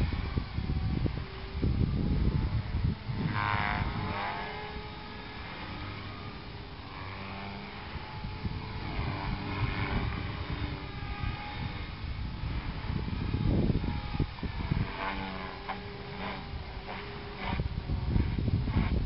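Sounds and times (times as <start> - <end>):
model helicopter rotor whine: 0.0 - 19.0
wind rumble on microphone: 0.0 - 19.0.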